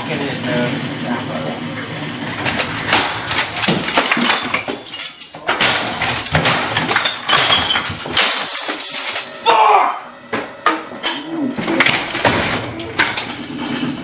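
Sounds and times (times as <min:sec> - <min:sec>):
plastic and glass breaking: 0:02.4 - 0:09.5, 0:10.3 - 0:14.0
hard blows smashing objects: 0:02.4 - 0:13.4.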